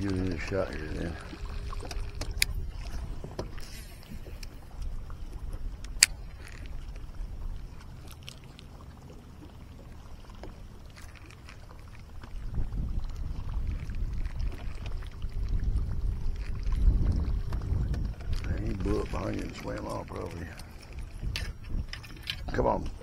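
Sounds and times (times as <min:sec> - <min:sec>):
water around boat: 0:00.0 - 0:23.0
low rumble: 0:12.3 - 0:23.0.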